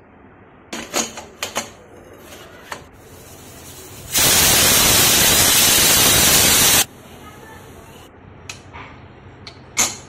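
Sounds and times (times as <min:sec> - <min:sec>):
pressure cooker whistle hissing: 0:04.1 - 0:06.9.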